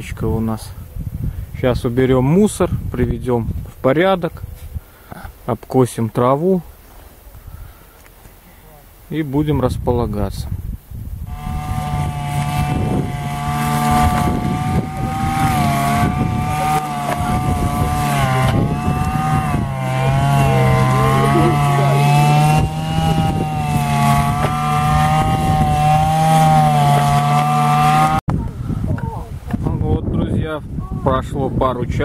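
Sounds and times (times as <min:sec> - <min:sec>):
brush cutter engine whining: 0:11.2 - 0:28.2.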